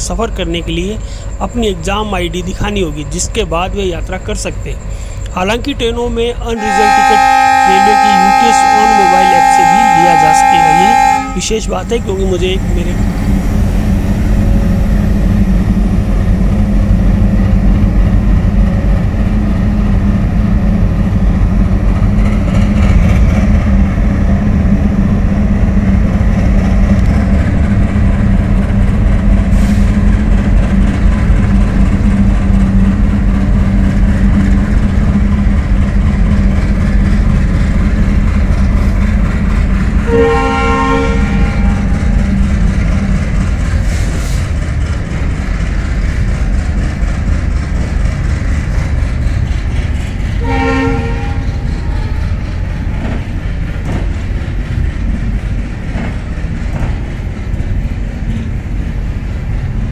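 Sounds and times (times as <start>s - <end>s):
diesel locomotives chugging: 0.0s - 59.9s
train horn: 6.6s - 12.9s, 40.0s - 42.2s, 50.4s - 53.1s.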